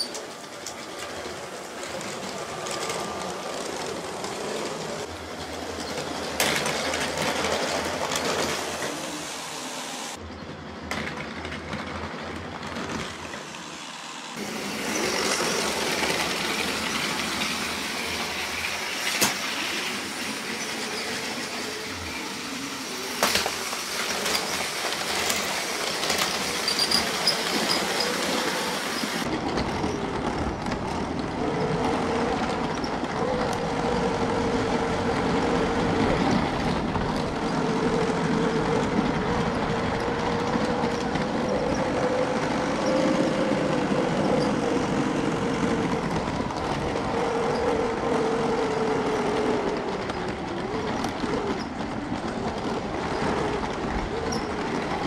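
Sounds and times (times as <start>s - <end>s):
toy train motor and wheels rattling: 0.0s - 10.2s, 10.8s - 55.0s.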